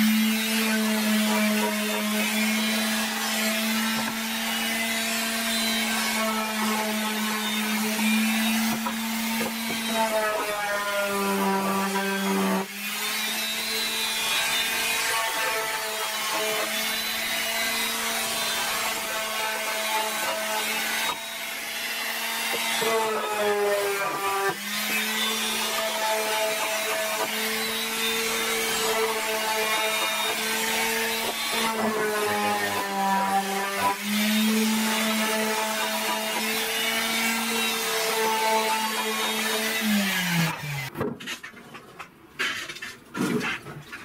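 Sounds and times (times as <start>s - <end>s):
orbital sander on wood: 0.0s - 40.9s.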